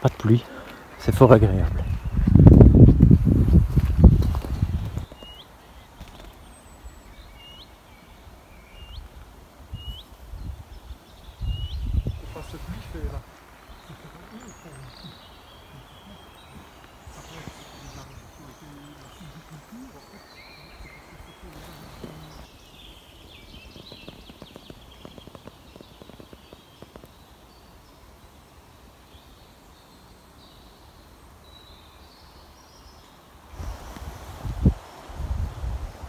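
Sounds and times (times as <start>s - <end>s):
soft crackles: 0.0s - 7.1s, 12.1s - 27.6s, 33.5s - 36.0s
wind rumble on microphone: 1.1s - 5.2s, 9.6s - 13.2s, 33.5s - 36.0s
faint bird chirps: 5.0s - 28.4s.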